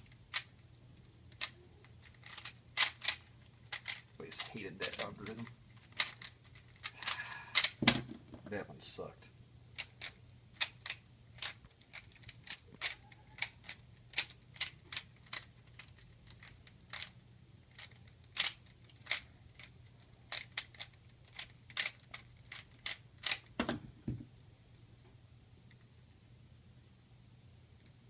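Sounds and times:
faint low steady hum: 0.0 - 28.0
puzzle cube layers clicking: 1.3 - 7.8.

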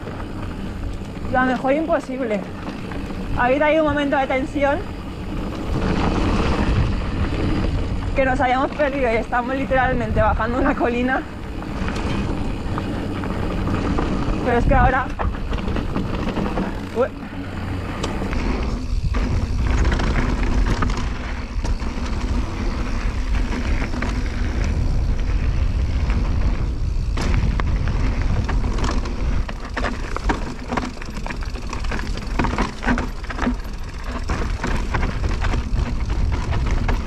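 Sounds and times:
bike rattling and knocking: 0.0 - 37.0
wind rushing over microphone: 0.0 - 37.0.

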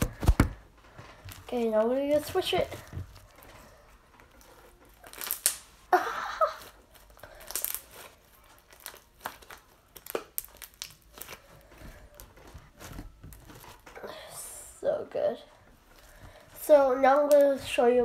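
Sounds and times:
slime crackling and popping: 4.2 - 14.0, 16.8 - 17.8.

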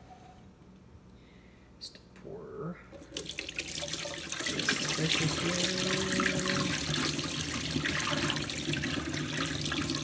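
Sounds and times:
water pouring into metal sink: 3.0 - 10.0.

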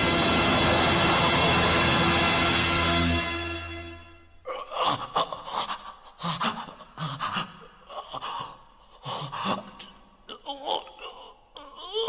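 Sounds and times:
man gasping and panting: 4.4 - 10.1.

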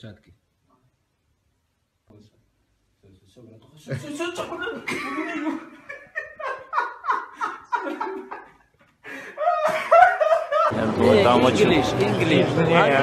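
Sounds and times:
man laughing hard: 9.2 - 10.7.

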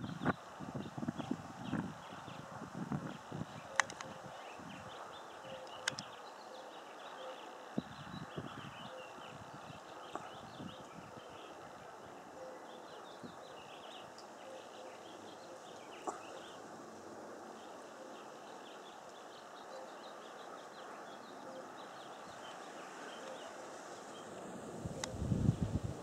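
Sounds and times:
faint steady hiss: 0.0 - 26.0
small birds chirping: 0.0 - 26.0
sharp click: 3.8 - 4.1, 5.6 - 6.1.

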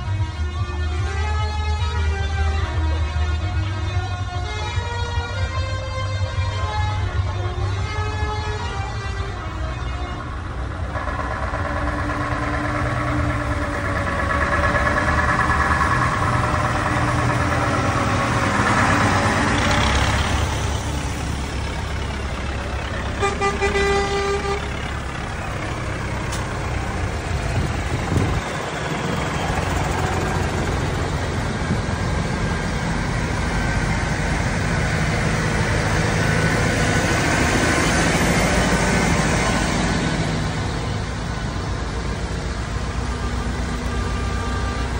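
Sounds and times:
diesel engines rumbling: 0.0 - 44.9
vehicle horn: 0.4 - 11.3, 23.0 - 24.9, 42.9 - 44.9.

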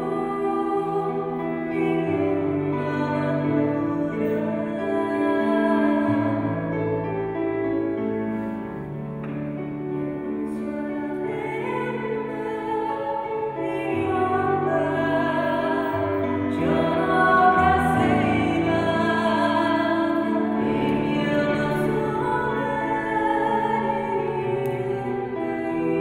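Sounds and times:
sustained piano chords: 0.0 - 26.0
woman singing slowly: 10.6 - 26.0.

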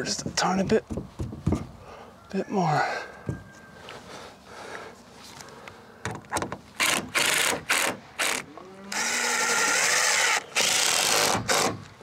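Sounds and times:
cordless drill driving screws: 6.8 - 11.8.

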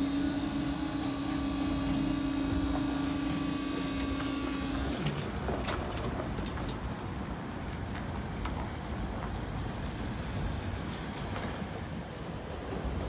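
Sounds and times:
train horn: 0.0 - 4.0
train rumble: 0.0 - 13.0.

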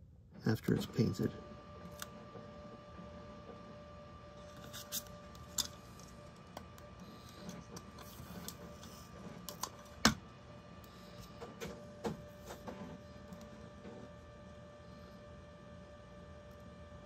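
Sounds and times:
handling masking tape on paper: 4.4 - 9.6.

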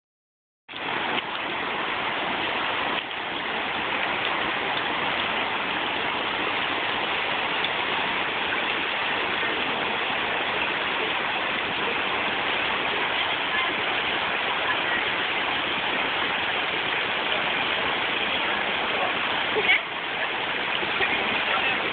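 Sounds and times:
river water rushing over stones: 0.7 - 21.9.

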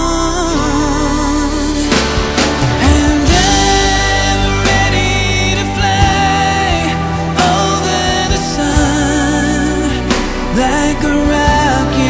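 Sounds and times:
song accompaniment: 0.0 - 12.0
drum beats: 1.8 - 9.5, 10.1 - 12.0.

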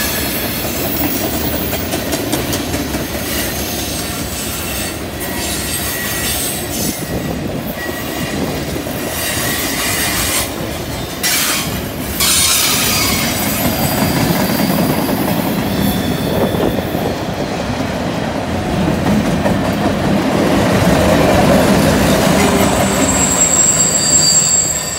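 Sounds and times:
freight train wheels rumbling: 0.0 - 24.9
faint wheel squeal: 15.6 - 17.2, 22.5 - 24.9.

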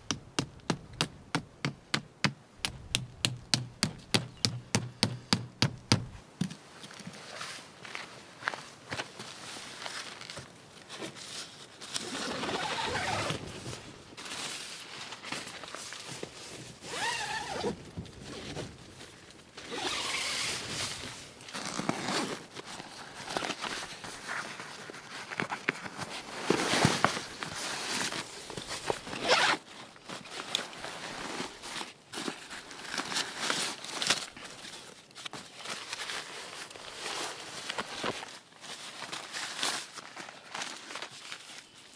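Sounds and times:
fabric rustling: 11.0 - 17.7, 18.3 - 41.8
zippers pulled open: 12.0 - 13.5, 19.6 - 20.6, 29.1 - 29.6.

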